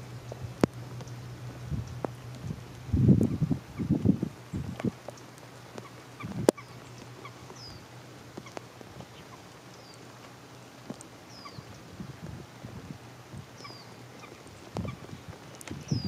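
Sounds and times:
rain pattering on water: 0.0 - 16.0
bird chirping: 4.5 - 10.1, 11.3 - 11.8, 13.6 - 16.0.

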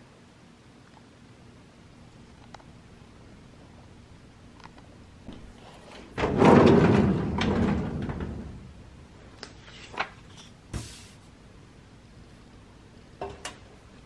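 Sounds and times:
drawer sliding open: 5.6 - 8.7.

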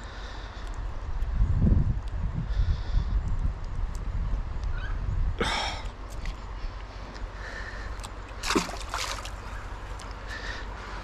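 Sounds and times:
water splashing in river: 8.3 - 9.6.

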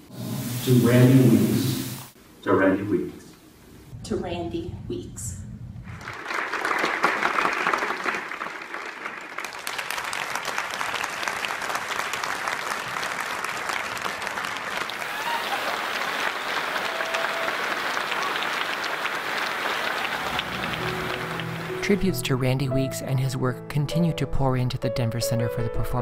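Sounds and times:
audience applauding: 5.9 - 22.2.

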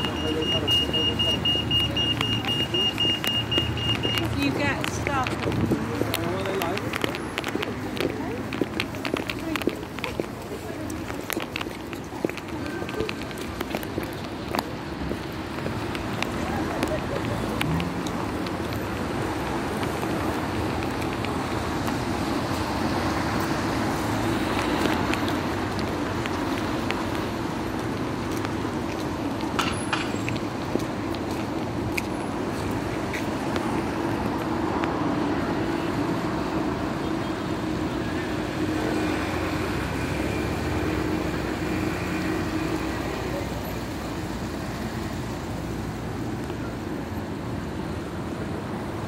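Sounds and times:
traffic on wet streets: 0.0 - 49.0.

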